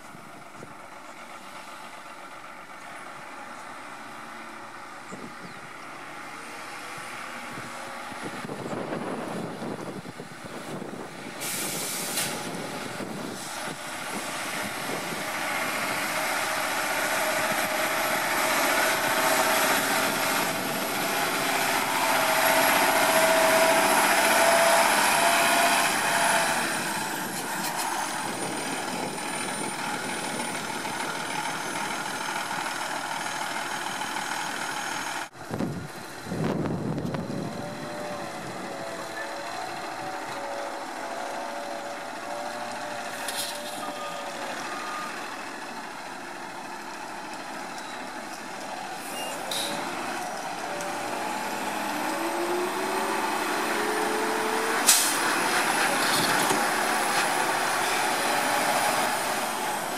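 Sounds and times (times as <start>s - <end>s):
garbage truck diesel engine passing: 0.1s - 59.9s
air brake hiss: 11.4s - 12.5s, 54.8s - 55.3s.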